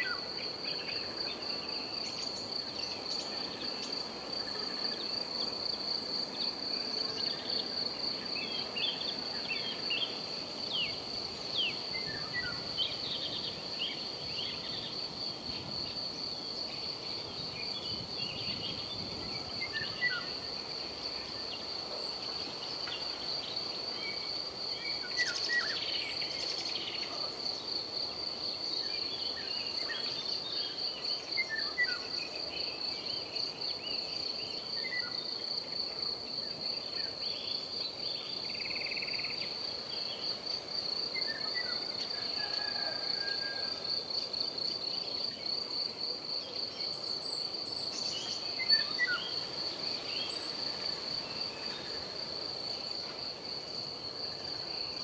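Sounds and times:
crickets trilling: 0.0 - 55.0
soft wind hiss: 0.0 - 55.0.

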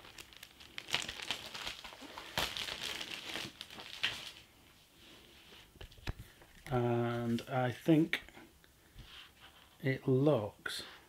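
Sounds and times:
magazine crinkling and rustling: 0.0 - 4.5.

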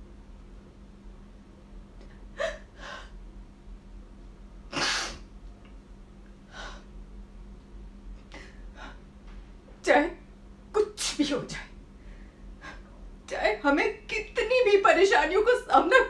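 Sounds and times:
woman crying and gasping: 2.3 - 3.2.

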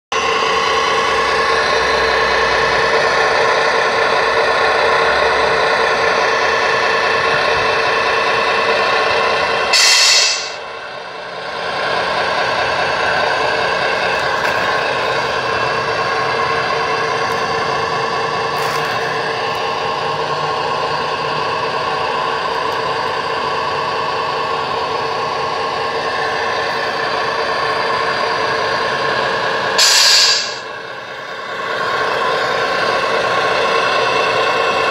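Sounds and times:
simulated diesel truck engine: 0.1 - 34.9
air-brake hiss: 9.7 - 10.6, 29.8 - 30.7.

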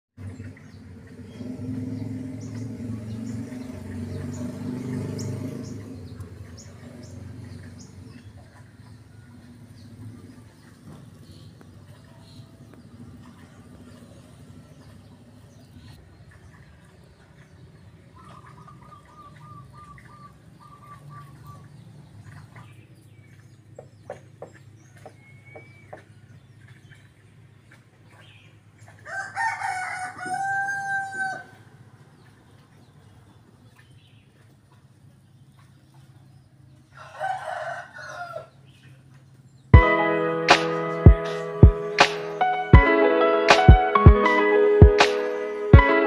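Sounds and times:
small birds chirping: 0.2 - 29.0.

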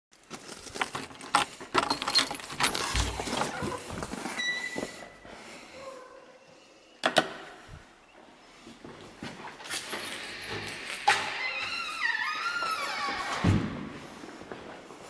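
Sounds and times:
door unlatching and squeaking open: 9.6 - 13.9.

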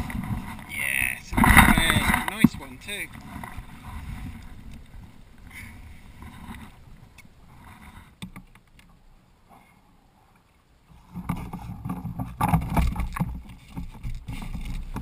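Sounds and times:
wind on microphone: 0.0 - 8.1
water sloshing against kayak hull: 0.0 - 15.0.

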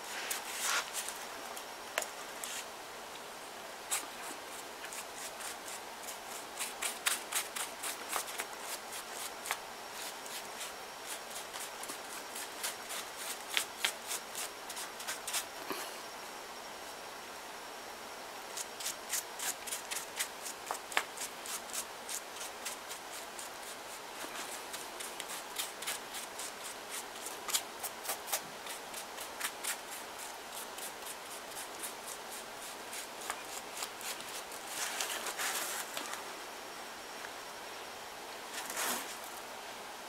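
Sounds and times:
paper rustling: 33.2 - 36.2.

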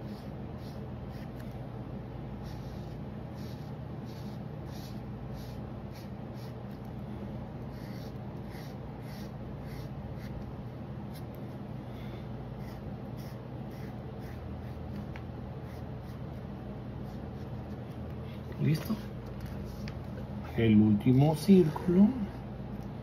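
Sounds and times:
marker scratching on paper: 0.0 - 1.6, 2.4 - 6.9, 7.6 - 10.5, 11.1 - 11.5, 12.6 - 16.4
steady low hum: 0.0 - 23.0.

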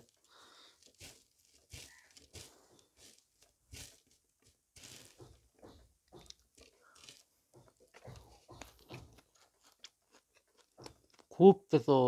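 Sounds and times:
fingers mixing rice on a plate: 4.8 - 11.3.

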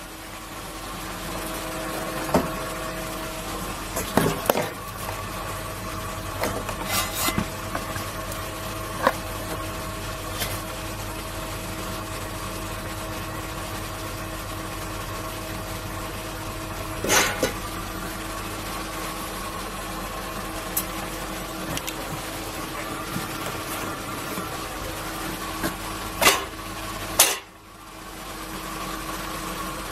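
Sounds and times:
steady machine hum: 0.0 - 29.9
scraping rustle: 6.4 - 8.0.

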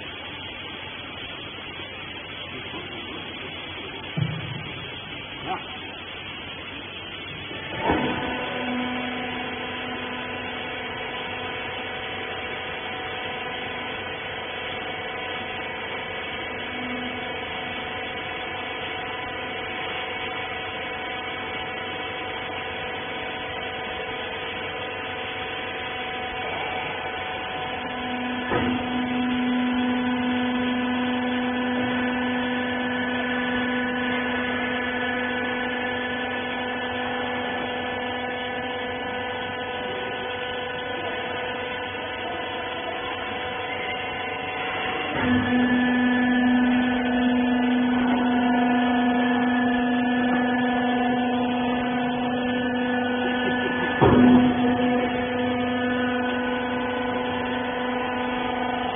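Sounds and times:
hydraulic baler humming: 0.0 - 58.9
loud low hum: 0.0 - 58.9.

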